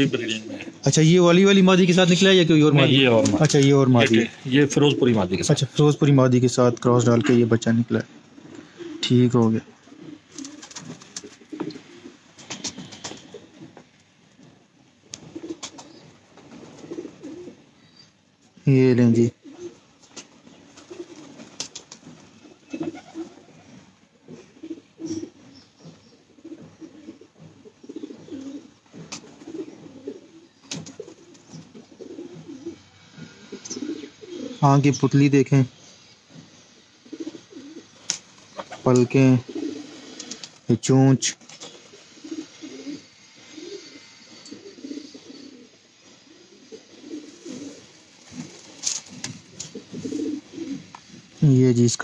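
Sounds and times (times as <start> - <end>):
pigeons cooing: 0.0 - 52.0.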